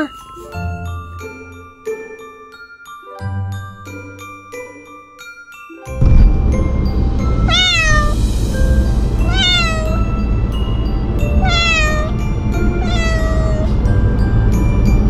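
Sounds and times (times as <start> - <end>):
background music: 0.0 - 15.0
low road rumble inside car: 6.0 - 15.0
kitten meowing: 7.5 - 8.2, 9.2 - 10.2, 11.4 - 13.7.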